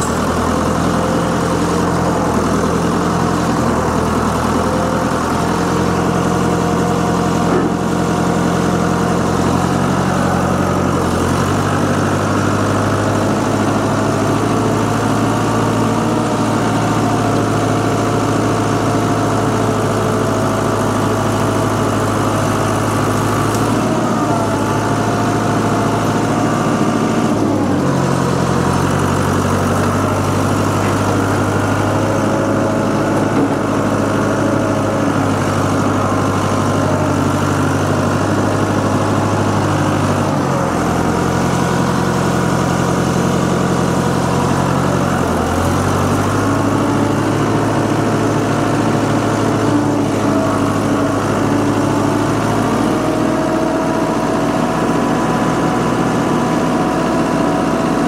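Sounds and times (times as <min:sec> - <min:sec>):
tractor engine running: 0:00.0 - 0:58.0.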